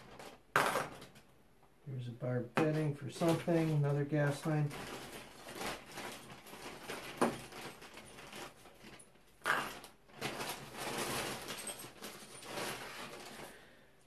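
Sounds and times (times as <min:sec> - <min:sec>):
parts rustling with light knocks: 0:02.6 - 0:13.6.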